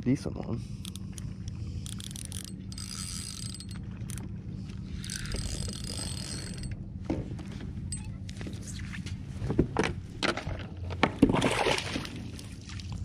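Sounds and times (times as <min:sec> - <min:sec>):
fishing reel whirring: 0:00.8 - 0:06.8.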